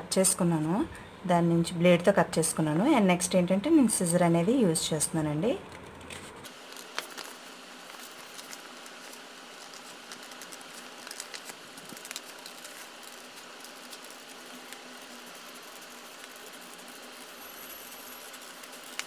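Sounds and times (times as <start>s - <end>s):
paper crinkling: 5.7s - 19.0s
scissors snipping paper: 6.1s - 19.0s.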